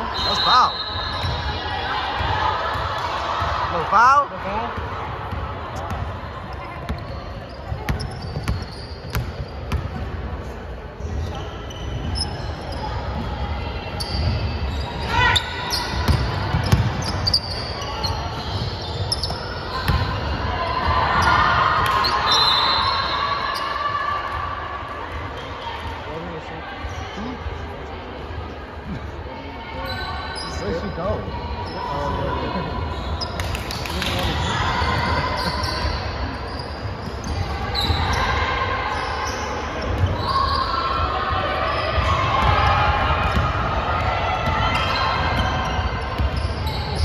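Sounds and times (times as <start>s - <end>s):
sneaker squeaks: 0.0s - 3.6s, 5.7s - 26.1s, 28.9s - 43.7s, 44.4s - 47.0s
basketballs bouncing on hardwood: 16.1s - 17.1s.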